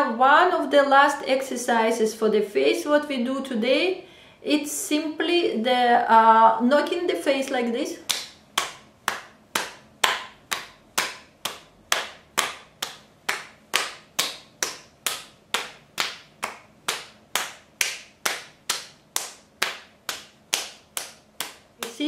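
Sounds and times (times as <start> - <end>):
palms slapping cheeks: 8.0 - 22.0.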